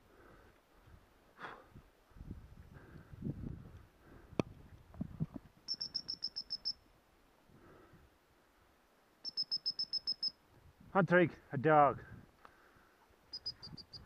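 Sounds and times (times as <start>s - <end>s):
dog collar beeper beeping: 5.7s - 6.8s, 9.3s - 10.3s.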